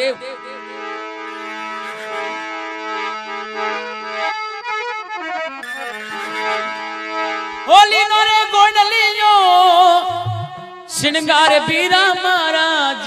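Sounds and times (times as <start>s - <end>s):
harmonium melody over drone: 0.0s - 13.0s.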